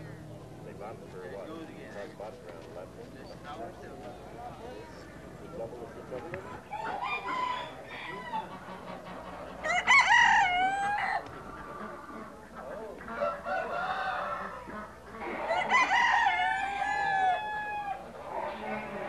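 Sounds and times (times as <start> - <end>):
roosters crowing: 5.9 - 19.0.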